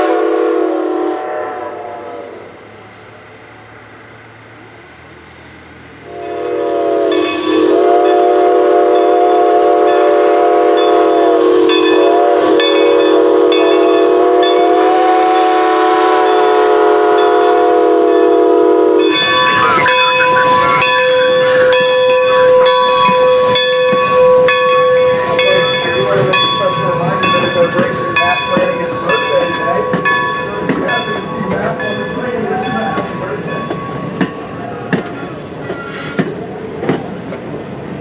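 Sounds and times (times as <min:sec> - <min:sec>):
steam whistle blast: 0:00.0 - 0:02.6, 0:06.0 - 0:23.6
locomotive bell ringing: 0:06.0 - 0:36.4.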